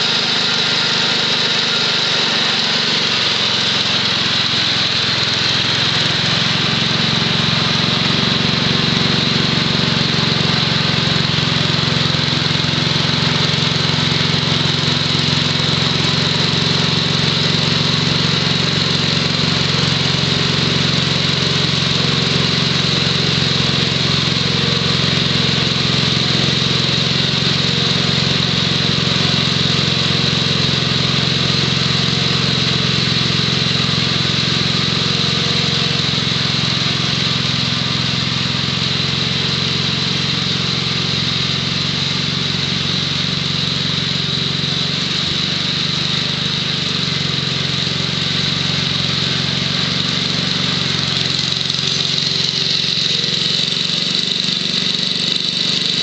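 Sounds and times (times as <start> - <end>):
snowthrower engine running: 0.0 - 56.0.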